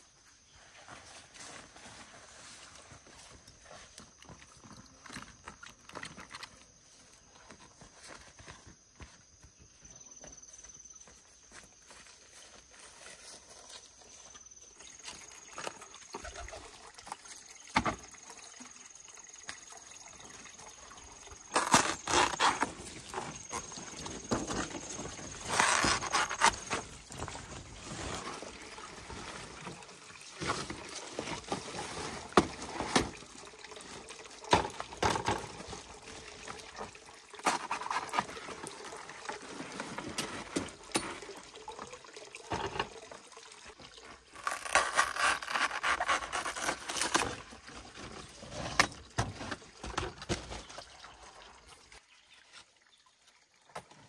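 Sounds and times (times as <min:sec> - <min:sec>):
rustling leaves: 0:21.4 - 0:33.3, 0:44.3 - 0:50.8.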